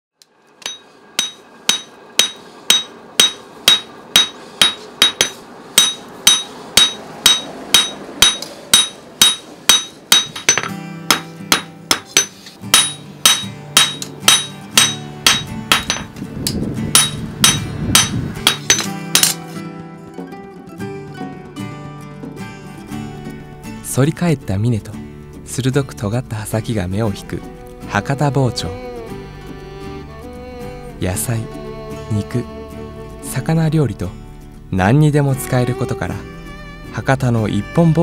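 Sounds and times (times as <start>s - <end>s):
hammer ringing on anvil: 0.6s - 16.1s, 16.9s - 19.4s
background music: 5.8s - 38.0s.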